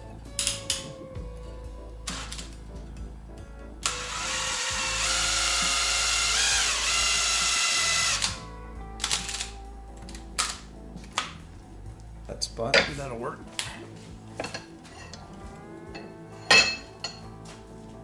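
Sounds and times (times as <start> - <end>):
cordless drill running: 3.8 - 8.4.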